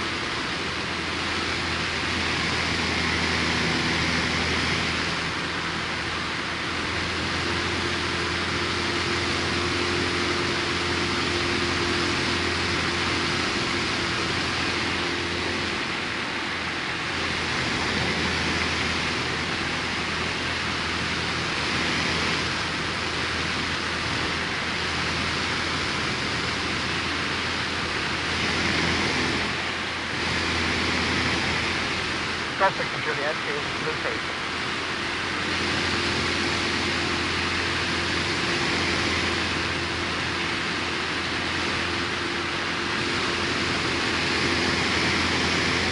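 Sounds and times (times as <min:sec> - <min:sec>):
light aircraft engine and propeller: 0:00.0 - 0:45.9.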